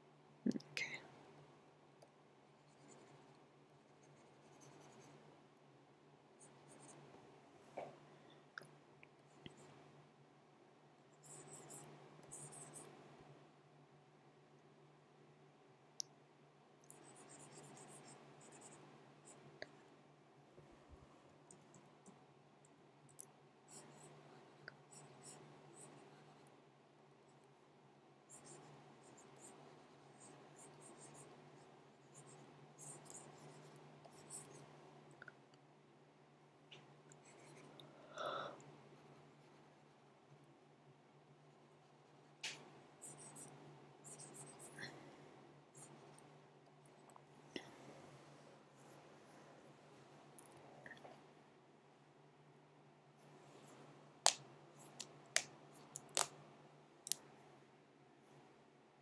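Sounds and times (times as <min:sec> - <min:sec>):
low electrical hum: 0:00.0 - 0:59.0
stylus scratching on tablet: 0:02.6 - 0:05.3, 0:06.4 - 0:07.1, 0:09.2 - 0:09.8, 0:11.1 - 0:13.1, 0:16.9 - 0:19.8, 0:23.7 - 0:26.5, 0:28.3 - 0:34.9, 0:37.1 - 0:37.9, 0:38.9 - 0:40.0, 0:41.4 - 0:44.9.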